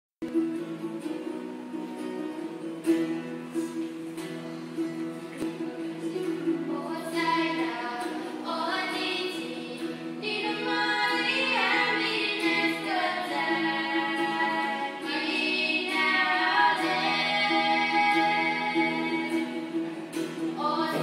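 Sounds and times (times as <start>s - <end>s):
voices singing a melody: 5.4s - 21.0s.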